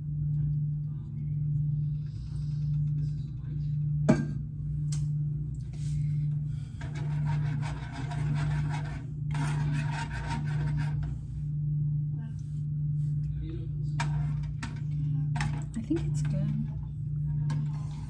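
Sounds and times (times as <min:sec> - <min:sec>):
steady low hum: 0:00.0 - 0:18.0
rasping scraping of food preparation: 0:05.8 - 0:11.4, 0:14.0 - 0:16.4, 0:17.3 - 0:18.0.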